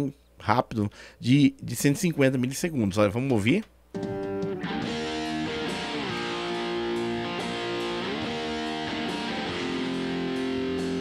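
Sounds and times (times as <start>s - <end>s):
electric guitar strummed chords: 4.0s - 11.0s.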